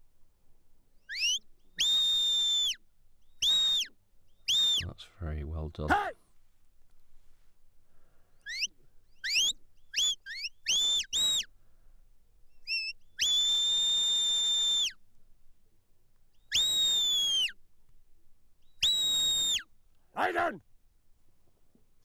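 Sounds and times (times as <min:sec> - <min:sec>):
long high whistles: 0:01.0 - 0:05.0, 0:08.3 - 0:11.6, 0:12.6 - 0:15.0, 0:16.4 - 0:17.6, 0:18.6 - 0:19.7
short rising whistles: 0:01.0 - 0:05.0, 0:08.3 - 0:11.6, 0:12.5 - 0:15.0, 0:16.4 - 0:17.6, 0:18.6 - 0:19.7.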